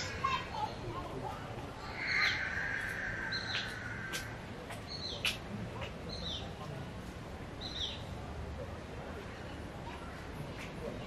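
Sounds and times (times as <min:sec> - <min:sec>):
bird calling high falling notes: 0:01.8 - 0:04.5.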